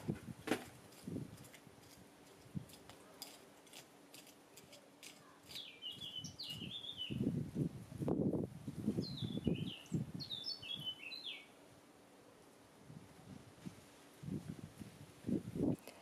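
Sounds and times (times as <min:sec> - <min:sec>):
hand hoe scraping soil: 0:00.5 - 0:06.0
bird chirping: 0:05.4 - 0:07.3, 0:09.0 - 0:11.6.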